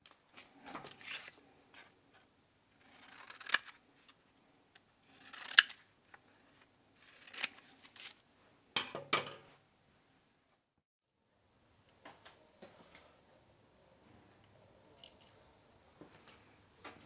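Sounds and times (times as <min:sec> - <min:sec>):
scissors cutting paper: 0:02.8 - 0:03.8, 0:05.1 - 0:05.9, 0:07.0 - 0:08.2.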